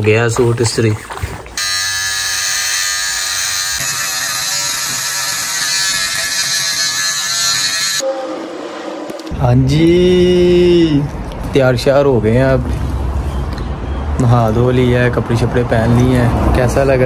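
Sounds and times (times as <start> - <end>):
electric beard trimmer buzzing: 1.6 - 8.0.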